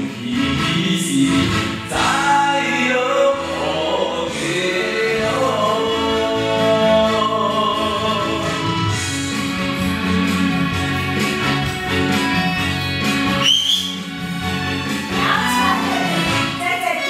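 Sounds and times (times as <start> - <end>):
ballad singing over music: 0.0 - 12.5.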